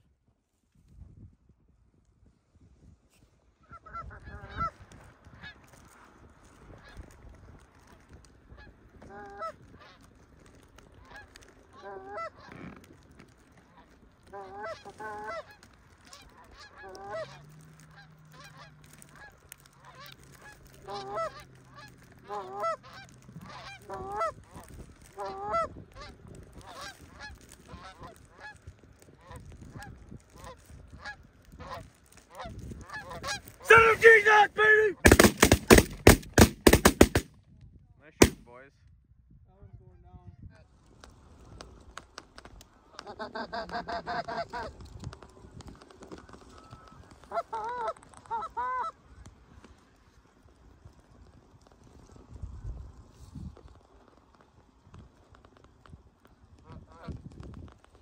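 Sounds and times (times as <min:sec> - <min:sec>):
goose honks: 0:14.3 - 0:24.4.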